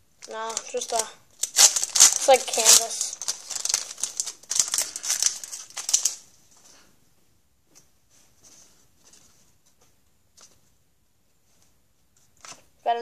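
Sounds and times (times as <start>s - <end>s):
wrapper crinkling: 0.0s - 6.7s
cards rustling: 0.2s - 6.7s.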